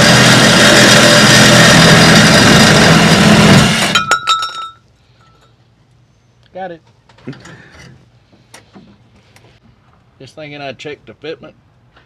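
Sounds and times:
power drill cutting sheet metal: 0.0 - 4.0.

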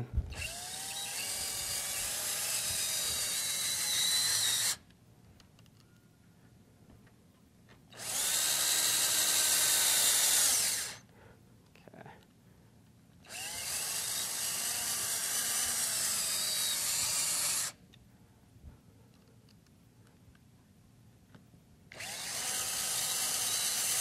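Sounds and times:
cordless drill driving screws: 0.3 - 4.8, 7.9 - 11.0, 13.3 - 17.8, 21.9 - 24.0.

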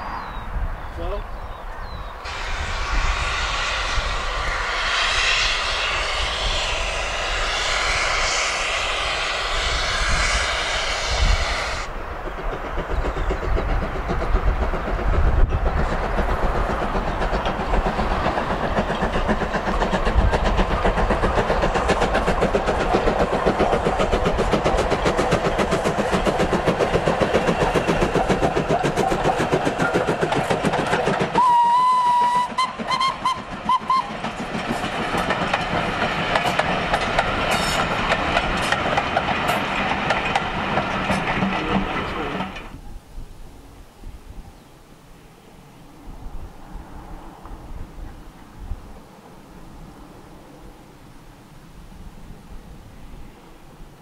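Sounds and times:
steam locomotive chuffing: 2.2 - 42.8
train whistle: 2.3 - 11.9, 31.3 - 34.2
wheels clacking over rail joints: 12.3 - 42.8.

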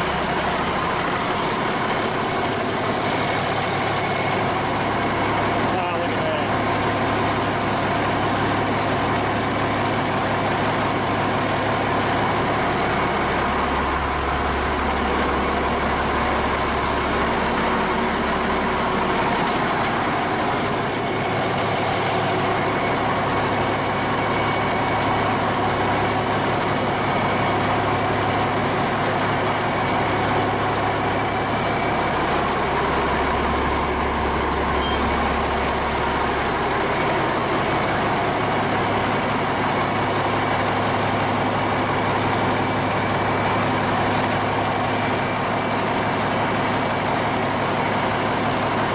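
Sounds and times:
diesel engine droning: 0.0 - 48.9.

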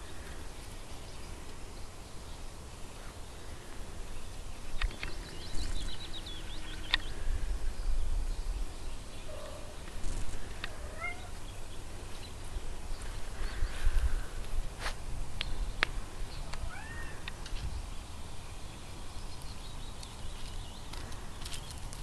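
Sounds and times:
wind rumble on microphone: 4.6 - 18.3.

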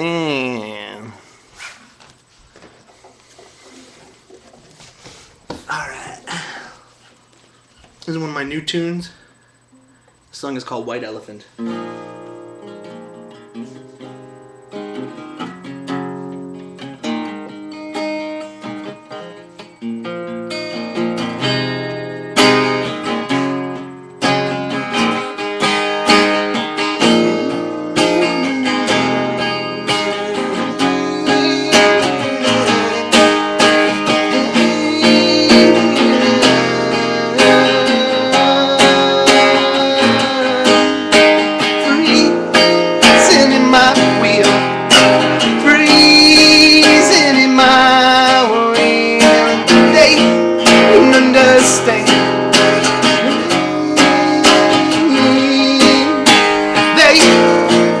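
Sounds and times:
solo acoustic guitar: 0.0 - 2.1, 11.6 - 58.0.

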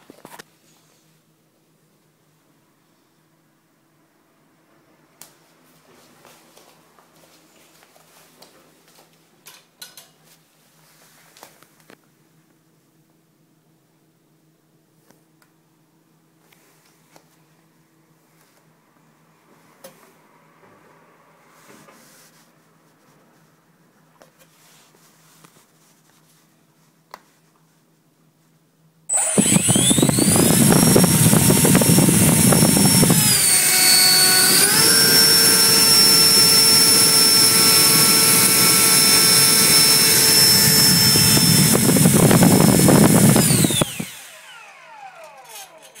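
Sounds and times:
electric ducted fan whine: 27.4 - 46.0.

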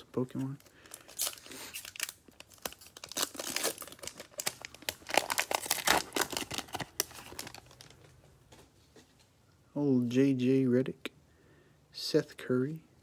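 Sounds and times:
foil wrapper tearing and crinkling: 0.8 - 7.9.

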